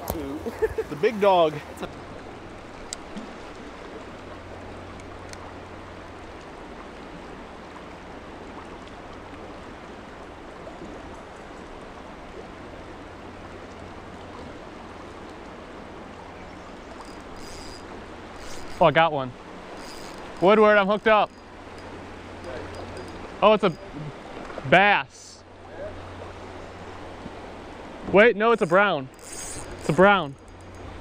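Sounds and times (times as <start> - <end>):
faint clicks: 2.6 - 3.6, 19.7 - 23.8.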